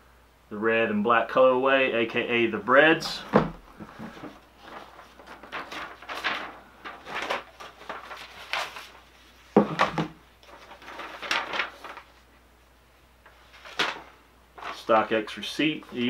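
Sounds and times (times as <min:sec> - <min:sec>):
paper rustling and scraping: 0:03.2 - 0:12.3, 0:13.2 - 0:16.0.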